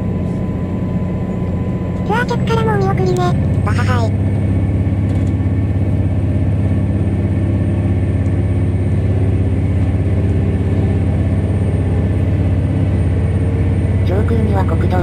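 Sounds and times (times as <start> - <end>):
diesel railcar engine droning: 0.0 - 15.0.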